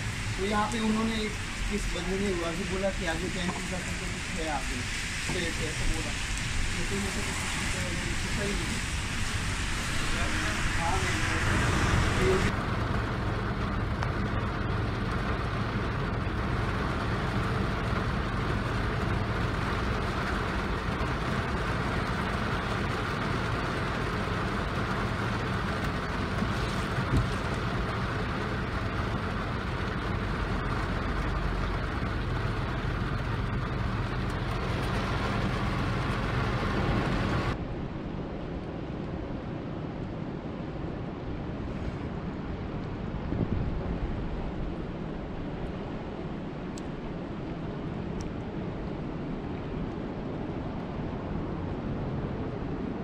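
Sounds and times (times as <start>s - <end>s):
rain on car windshield: 0.0s - 37.6s
low vehicle hum: 0.0s - 53.0s.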